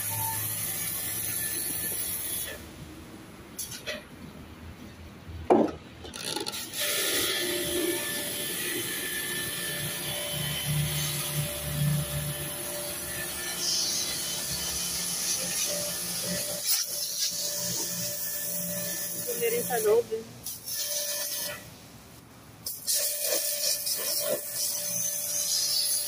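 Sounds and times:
pressure washer spraying metal: 0.0s - 2.6s, 6.6s - 21.6s, 22.6s - 26.0s
sharp knock: 5.5s - 5.8s.

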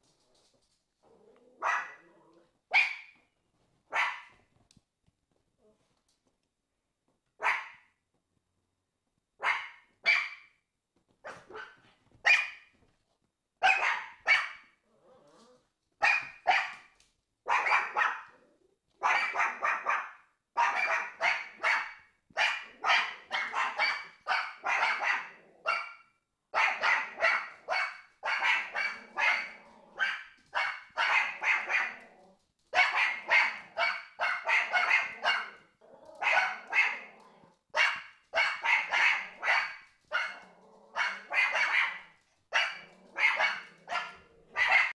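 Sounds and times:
small dogs barking: 1.4s - 3.2s, 3.9s - 4.4s, 7.4s - 7.9s, 9.4s - 10.6s, 11.2s - 12.7s, 13.6s - 14.8s, 16.0s - 44.9s.

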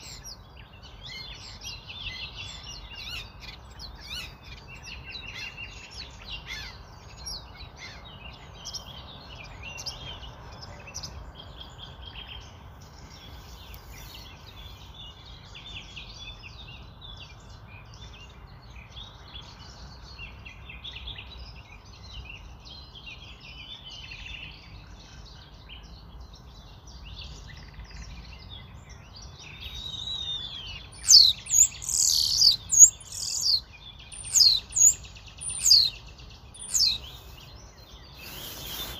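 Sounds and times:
birds chirping: 0.0s - 38.9s
low steady background noise: 0.0s - 38.9s
sharp whistled bird calls: 29.5s - 38.9s.

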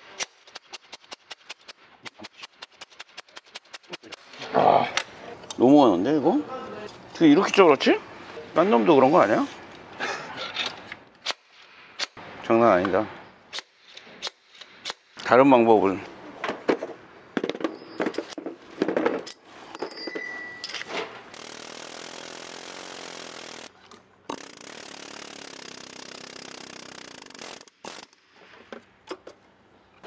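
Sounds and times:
tool clinks and knocks: 16.7s - 21.2s
pneumatic tool running: 21.3s - 23.7s, 24.3s - 28.4s.

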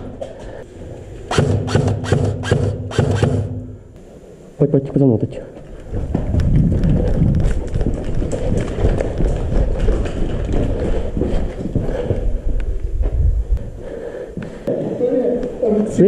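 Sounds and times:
running footsteps: 5.6s - 15.0s
gear jostling: 5.7s - 11.8s
low rumble on microphone: 5.9s - 13.9s.

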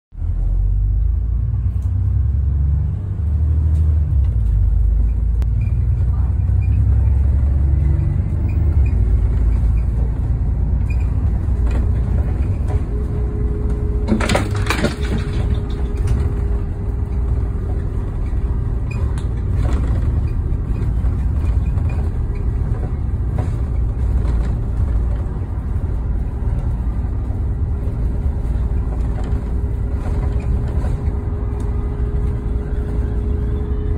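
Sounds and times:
bus engine rumble: 0.1s - 33.9s
noisy rattle: 14.0s - 33.3s.

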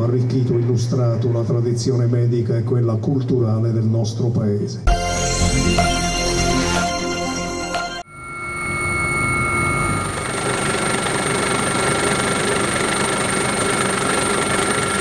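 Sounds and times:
high turbine whine: 4.9s - 15.0s
helicopter engine and rotors: 8.4s - 15.0s.

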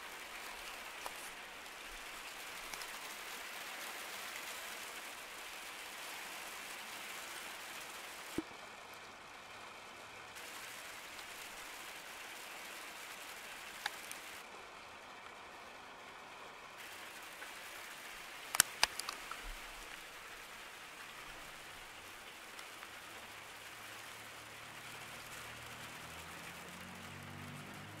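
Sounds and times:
light rain falling: 0.0s - 28.0s.

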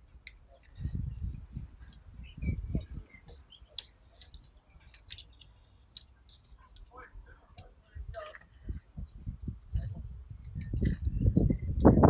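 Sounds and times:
metallic clicks of hex keys: 2.6s - 6.9s.

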